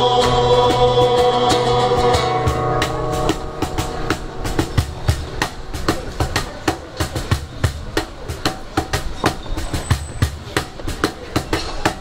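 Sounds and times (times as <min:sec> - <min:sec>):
guitars strumming: 0:00.0 - 0:09.2
cajon beat: 0:00.0 - 0:12.0.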